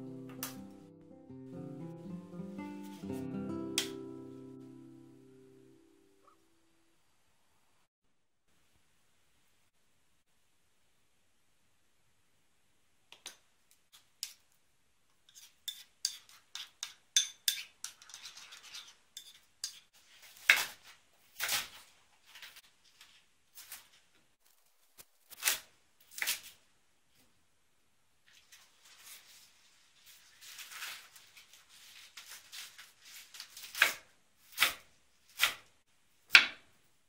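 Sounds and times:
knife cutting cabbage on board: 19.2s - 22.6s, 25.2s - 26.6s, 32.2s - 35.7s.

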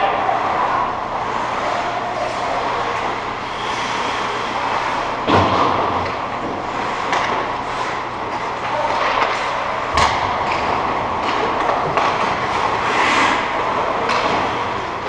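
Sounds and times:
skates hissing on ice: 3.5s - 5.1s, 12.8s - 13.4s
hockey stick and puck clacks: 5.3s - 15.0s.

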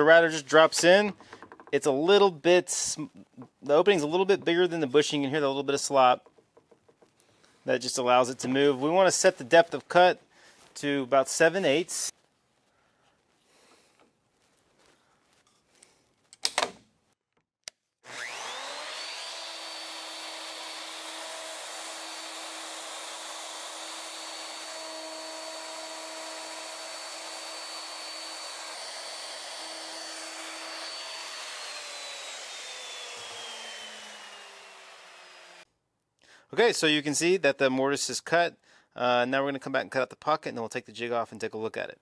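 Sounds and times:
router motor whining: 18.1s - 35.6s.

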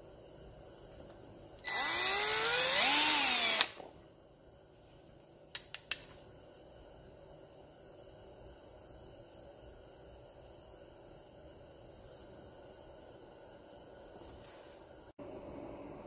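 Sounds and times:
cordless drill spinning: 1.6s - 3.8s.

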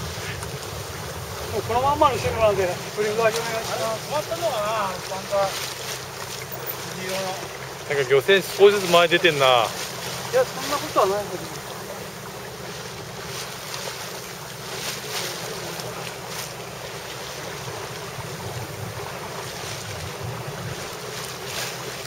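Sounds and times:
wind buffeting microphone: 0.0s - 5.5s, 10.2s - 22.0s
boat engine humming: 0.0s - 22.0s
water rushing along boat hull: 0.0s - 22.0s.

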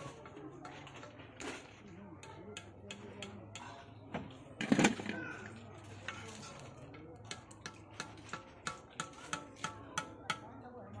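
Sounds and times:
metal ladle tapping a pan rim: 7.2s - 11.0s.

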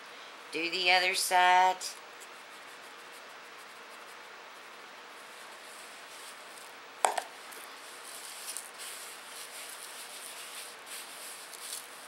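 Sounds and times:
gloved hands rubbing spice on meat: 1.9s - 6.8s, 7.4s - 12.0s
plastic bowl set down on wood: 7.0s - 7.3s.

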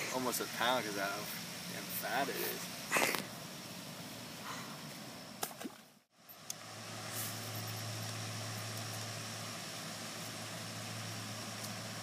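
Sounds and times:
low motor hum: 6.2s - 12.0s
thin high whine: 6.2s - 12.0s.

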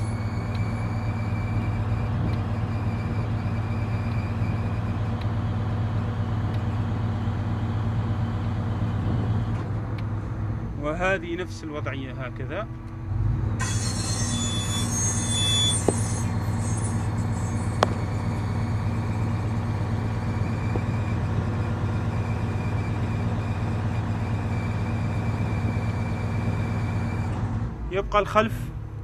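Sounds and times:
crane diesel engine running: 0.0s - 29.0s
thin high whine: 13.6s - 21.1s.

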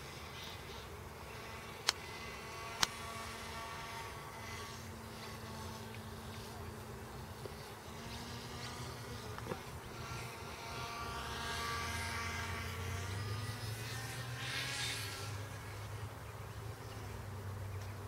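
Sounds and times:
model aircraft motor buzzing: 0.0s - 18.0s.

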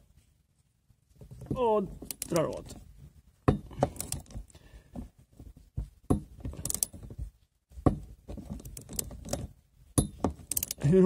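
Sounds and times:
wrenches clicking on metal nut: 2.0s - 2.8s, 3.9s - 4.4s, 6.5s - 7.0s, 8.4s - 10.9s.

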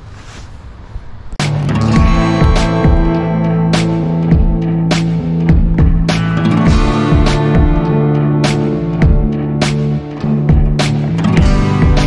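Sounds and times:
low wind rumble: 0.0s - 3.6s
road noise: 0.0s - 9.1s
outro music: 1.3s - 12.0s.

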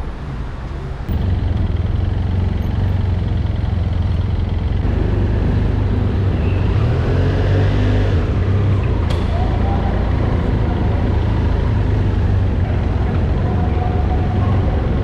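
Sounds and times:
motorcycle engine running slowly: 1.1s - 6.4s.

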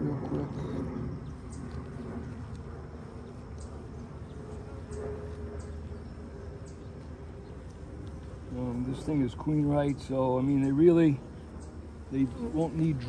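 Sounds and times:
honeybees buzzing: 0.0s - 13.0s.

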